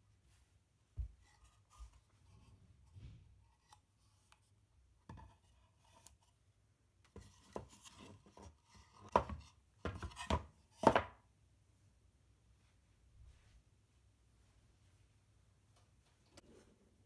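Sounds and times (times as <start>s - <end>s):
wooden boxes knocking on table: 9.1s - 11.2s.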